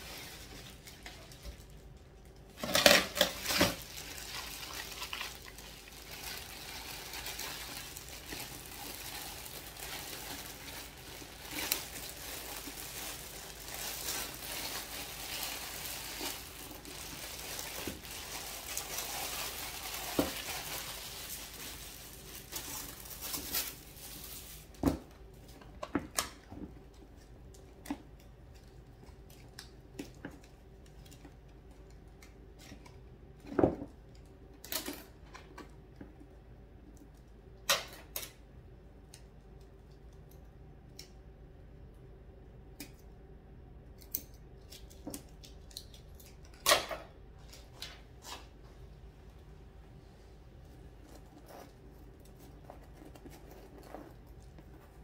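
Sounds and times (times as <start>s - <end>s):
plastic bag crinkling: 0.0s - 24.8s.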